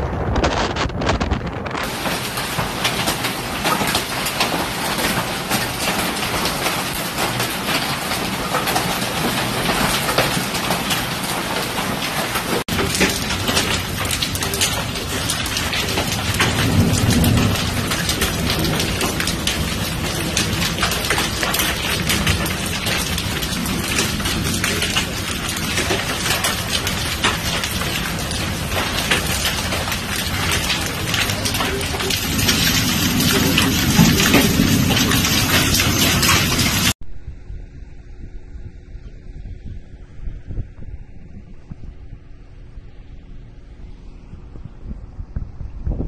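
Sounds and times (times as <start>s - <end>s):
hail falling on grass: 0.0s - 37.0s
hail hitting concrete: 0.1s - 37.0s
low rumble: 31.4s - 46.0s.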